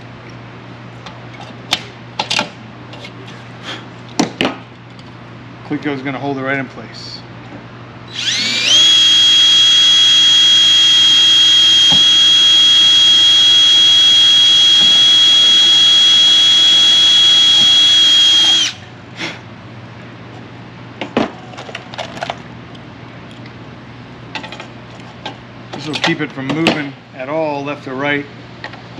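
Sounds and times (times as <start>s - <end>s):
cordless drill whining: 8.1s - 18.8s.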